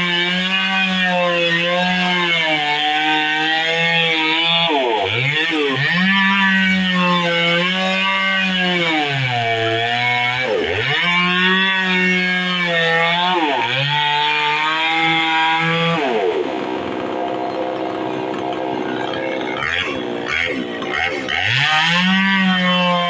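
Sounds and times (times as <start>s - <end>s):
chainsaw cutting wood: 0.0s - 23.0s.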